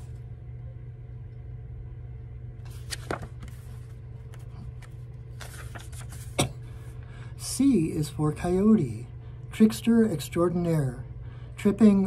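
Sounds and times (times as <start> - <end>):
low hum: 0.0 - 12.0
page flapping: 2.6 - 6.4
paper pages rustling: 2.6 - 6.4.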